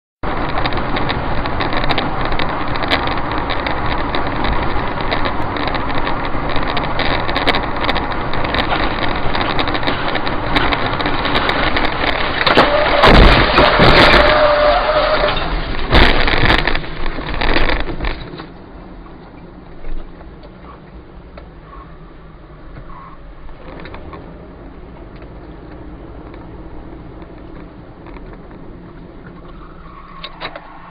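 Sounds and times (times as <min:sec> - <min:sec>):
car interior rushing noise: 0:00.2 - 0:19.0
tyre noise on wet road: 0:00.2 - 0:30.9
heavy crashing impacts: 0:08.6 - 0:17.6.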